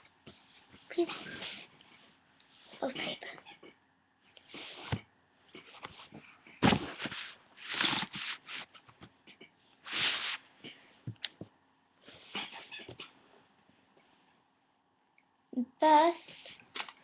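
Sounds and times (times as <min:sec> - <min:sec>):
paper rustling: 0:06.6 - 0:08.8.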